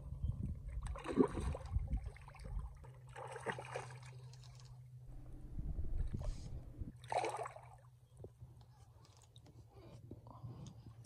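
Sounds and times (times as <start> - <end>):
steady low hum: 0.0 - 11.0
water sloshing and splashing: 0.6 - 8.0.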